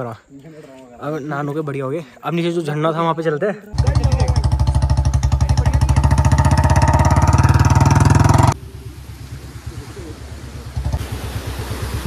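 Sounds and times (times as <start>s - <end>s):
motorcycle engine running: 3.8s - 12.0s.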